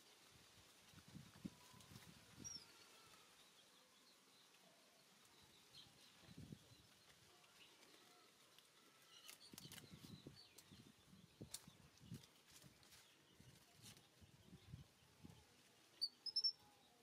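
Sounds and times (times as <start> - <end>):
small bird chirps: 9.0 - 17.0
soft rustling: 11.4 - 14.2.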